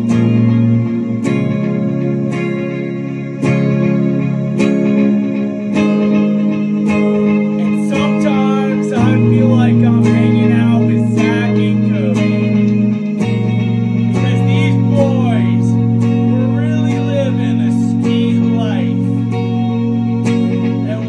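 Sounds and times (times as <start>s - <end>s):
electric guitar chords: 0.0s - 21.0s
man singing: 7.6s - 12.4s, 14.2s - 19.0s.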